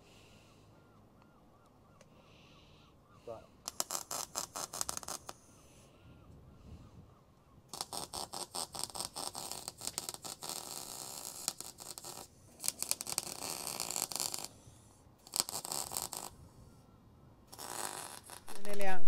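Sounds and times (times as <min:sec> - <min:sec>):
arc welding crackle: 0:03.6 - 0:05.4, 0:07.7 - 0:14.6, 0:15.2 - 0:16.4, 0:17.5 - 0:19.0.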